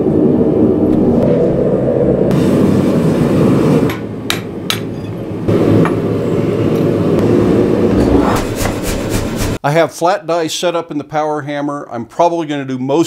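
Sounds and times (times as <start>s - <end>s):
power hammer striking: 3.8s - 6.1s.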